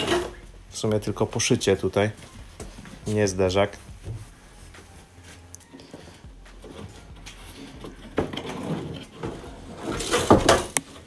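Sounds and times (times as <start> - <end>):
plastic scraping and knocking: 6.6 - 11.0.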